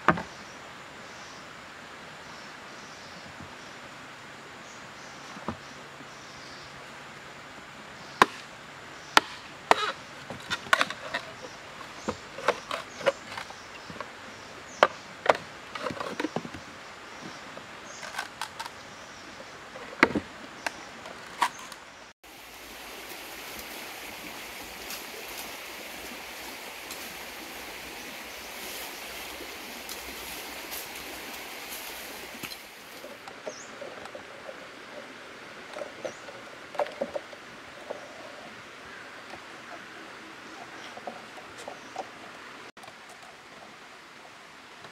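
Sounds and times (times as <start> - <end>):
steady hiss: 0.0 - 40.8
knife chopping bamboo: 8.2 - 8.5, 9.2 - 9.9.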